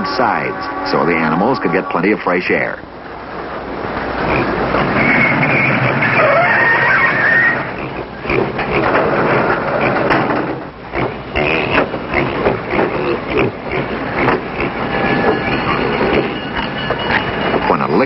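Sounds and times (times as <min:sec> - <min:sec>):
steady noisy rumble: 0:00.0 - 0:18.0
livestock noises: 0:04.2 - 0:17.2
knocks and clatter on wood: 0:08.4 - 0:13.0, 0:14.2 - 0:15.4.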